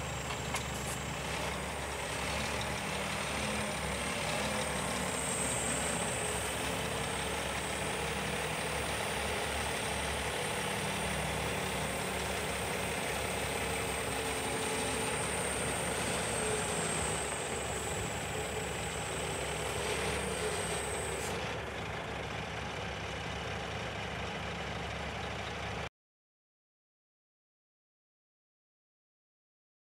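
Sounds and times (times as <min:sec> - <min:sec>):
thin high hydraulic whine: 0:00.0 - 0:21.6
diesel truck engine idling: 0:00.0 - 0:25.9.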